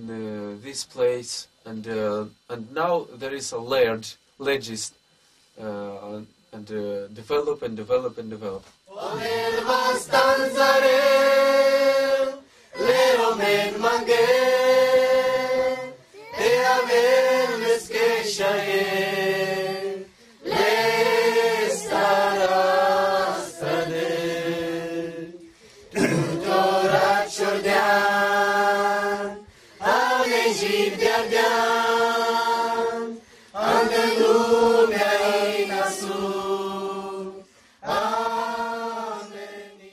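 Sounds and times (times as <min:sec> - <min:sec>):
voices singing a hymn: 0:08.9 - 0:39.9.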